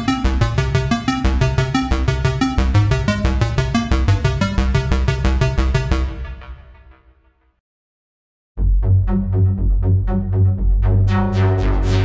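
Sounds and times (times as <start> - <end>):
synthesizer arpeggio: 0.0 - 6.8, 9.4 - 12.0
synth bass line: 0.0 - 6.9, 8.6 - 12.0.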